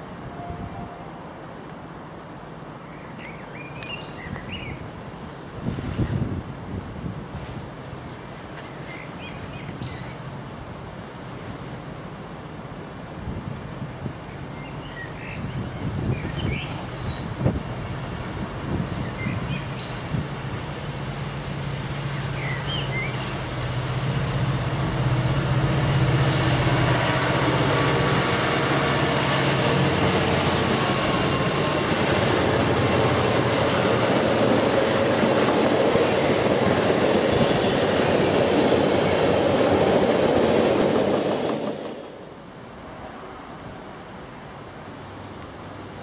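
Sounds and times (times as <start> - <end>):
train wagons rumbling on rails: 15.4 - 42.6
diesel locomotive droning: 20.4 - 41.7.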